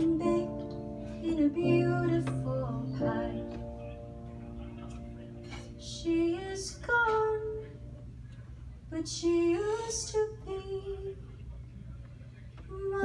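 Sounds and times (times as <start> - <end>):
woman singing into a microphone: 0.0 - 3.8, 5.8 - 7.9, 8.9 - 11.2, 12.7 - 13.0.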